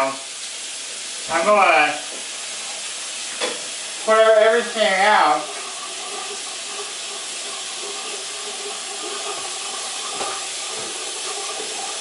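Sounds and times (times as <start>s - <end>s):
water running into sink: 0.0s - 12.0s.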